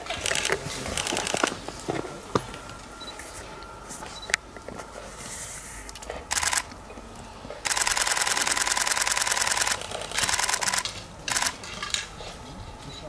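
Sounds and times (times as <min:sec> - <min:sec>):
camera shutters firing in bursts: 0:00.1 - 0:01.5, 0:06.0 - 0:06.7, 0:07.6 - 0:11.6.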